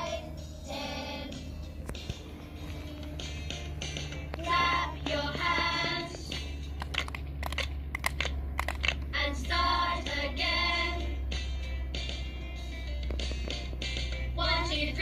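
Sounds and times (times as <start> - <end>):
children singing: 0.0 - 1.5, 9.2 - 11.2
sharp clicks: 6.8 - 9.0.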